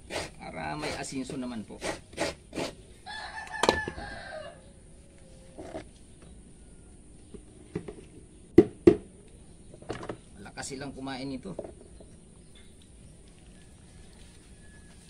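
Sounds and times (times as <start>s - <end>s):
rooster crowing: 3.0s - 5.8s, 13.5s - 15.0s.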